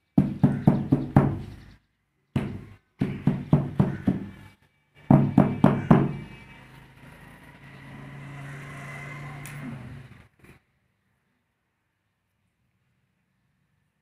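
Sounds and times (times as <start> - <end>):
knocks on concrete mould: 2.4 - 4.4, 5.1 - 6.2.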